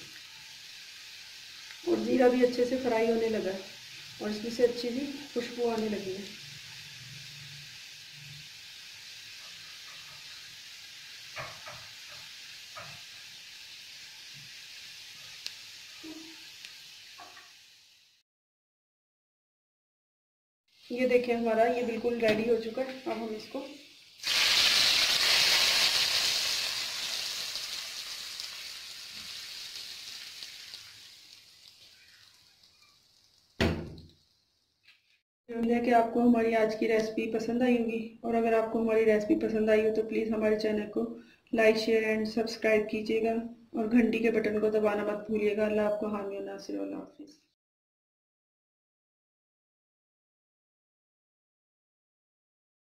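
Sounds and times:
seeds sizzling in hot oil: 0:00.0 - 0:18.2, 0:20.7 - 0:35.2
short thump: 0:33.6 - 0:34.0.

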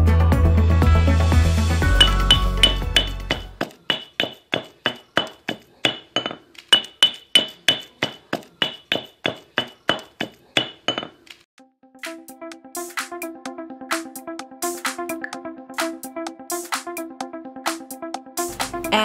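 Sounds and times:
pestle pounding in stone mortar: 0:02.0 - 0:11.3.

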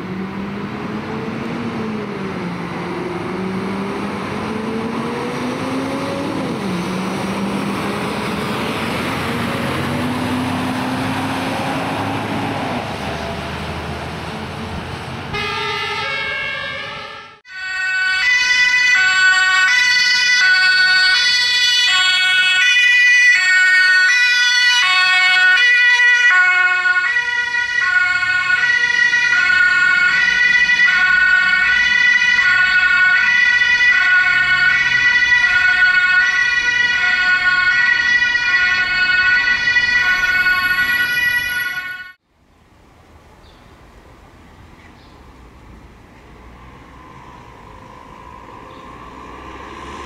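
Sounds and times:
vehicle noise: 0:00.0 - 0:50.0
two-tone emergency siren: 0:15.3 - 0:42.2.

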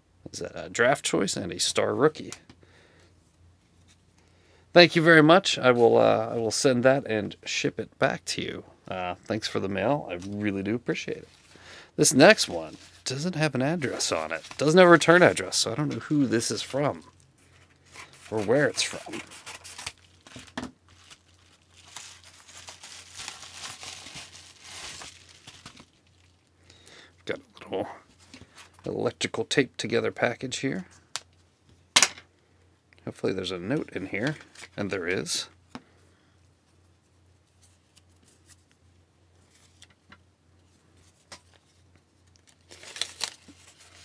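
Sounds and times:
paper packaging crinkling and tearing: 0:12.2 - 0:16.8, 0:17.8 - 0:26.4, 0:42.3 - 0:44.0.

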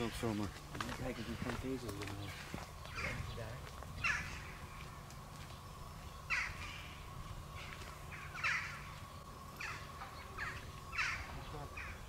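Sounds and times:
steady low rumble: 0:00.0 - 0:12.0
crow cawing: 0:04.0 - 0:05.0, 0:06.3 - 0:12.0.

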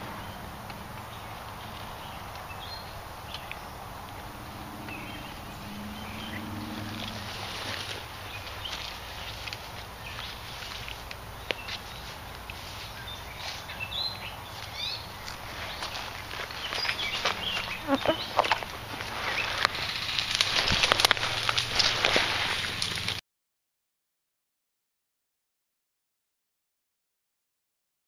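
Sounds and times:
dry brush crackling underfoot: 0:00.0 - 0:23.2.

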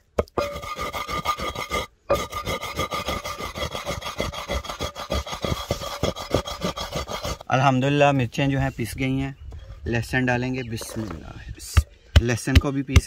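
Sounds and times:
pestle grinding in mortar: 0:00.0 - 0:07.5.

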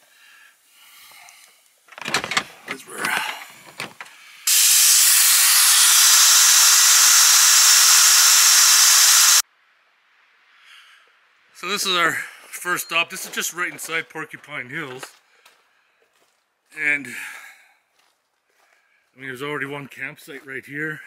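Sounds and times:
air hissing from a tire: 0:04.4 - 0:09.4.

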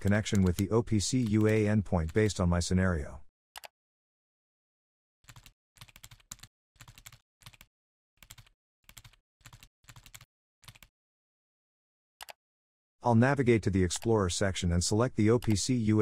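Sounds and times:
computer keyboard typing: 0:00.0 - 0:02.3, 0:05.3 - 0:10.9.

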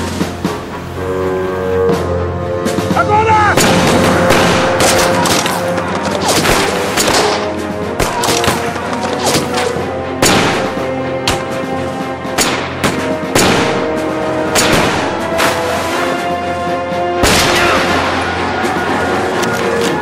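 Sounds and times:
background music with held notes: 0:00.0 - 0:20.0.

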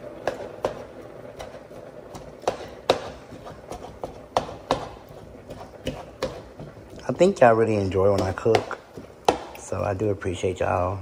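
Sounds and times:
spatula scraping a frying pan: 0:01.4 - 0:09.2.

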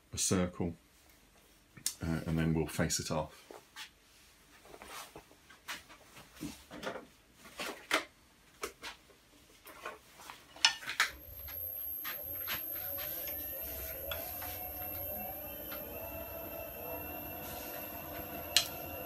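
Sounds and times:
lathe motor humming: 0:11.1 - 0:19.0.

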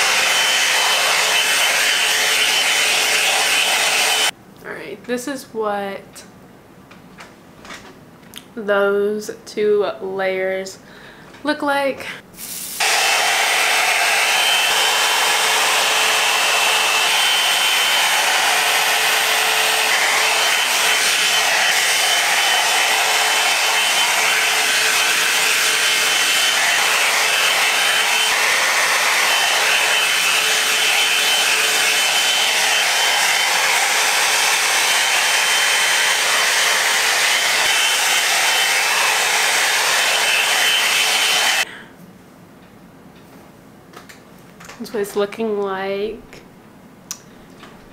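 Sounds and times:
blow-dryer brush running: 0:00.0 - 0:04.3, 0:12.7 - 0:41.7.

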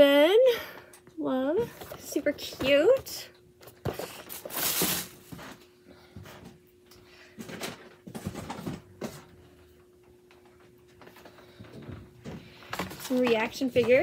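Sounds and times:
boxes and plastic packs handled: 0:01.5 - 0:05.7, 0:07.4 - 0:09.4, 0:10.3 - 0:14.0.

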